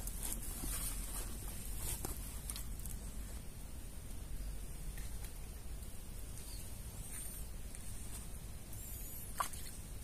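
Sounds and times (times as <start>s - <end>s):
faint bird chirps: 6.3s - 7.7s, 8.7s - 9.8s.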